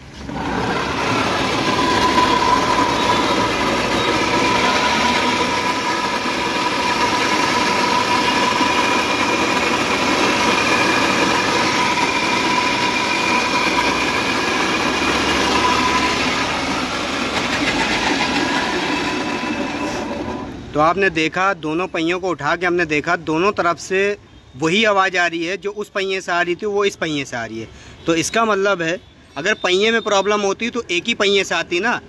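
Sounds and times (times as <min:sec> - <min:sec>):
electric motor drive whining roughly: 0:00.0 - 0:20.6.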